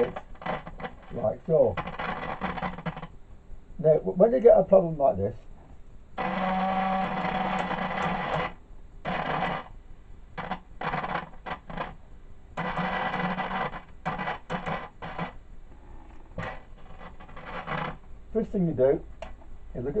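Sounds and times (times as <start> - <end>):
radio loudspeaker cutting in and out: 0.0 - 3.0
steady low hum: 0.0 - 20.0.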